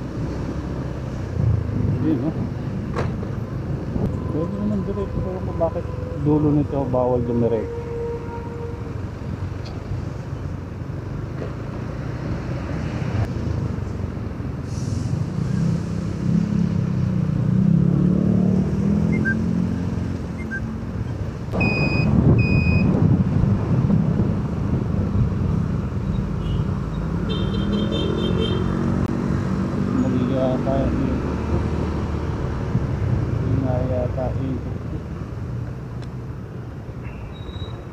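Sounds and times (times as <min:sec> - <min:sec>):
short high beeps: 0:19.1 - 0:19.4, 0:20.4 - 0:20.7, 0:21.6 - 0:22.9.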